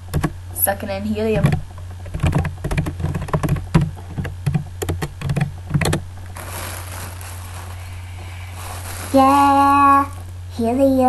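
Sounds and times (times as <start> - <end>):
breathy hiss of inhaling: 6.5 - 9.1.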